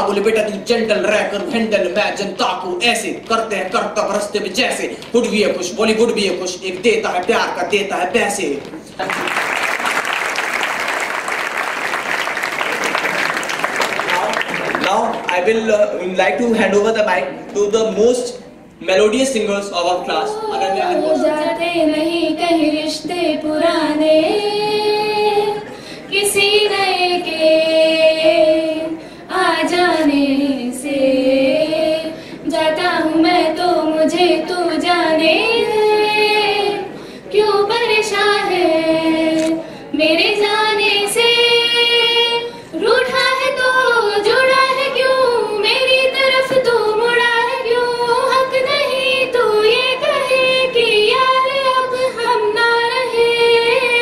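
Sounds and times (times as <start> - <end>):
girls singing unaccompanied: 20.0 - 54.0.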